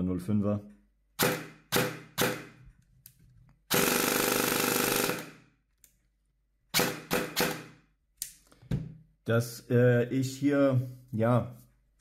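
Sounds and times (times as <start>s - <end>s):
airsoft rifle full-auto burst: 3.7s - 5.4s, 6.7s - 7.7s.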